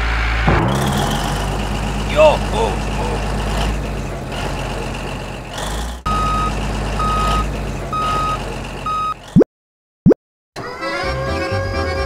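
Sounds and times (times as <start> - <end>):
vehicle engine running: 0.0 - 9.3
reversing alarm beeping: 6.1 - 9.2.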